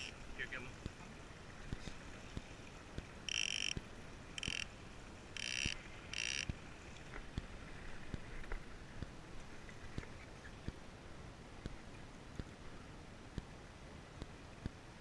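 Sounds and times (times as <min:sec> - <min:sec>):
faint reel ticks: 0:01.7 - 0:04.7, 0:05.4 - 0:06.6
fishing reel drag buzzing: 0:03.3 - 0:03.8, 0:04.4 - 0:04.7, 0:05.4 - 0:06.5.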